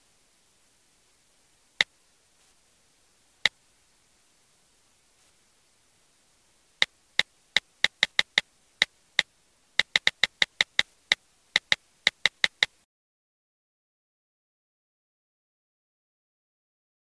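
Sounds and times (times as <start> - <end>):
faint hiss: 0.0 - 12.9
keyboard key clicks: 7.6 - 8.4, 9.8 - 10.9, 11.6 - 12.7.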